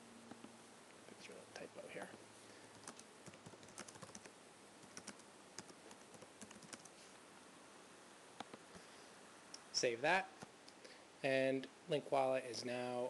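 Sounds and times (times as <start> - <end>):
keyboard typing clicks: 2.7 - 6.9.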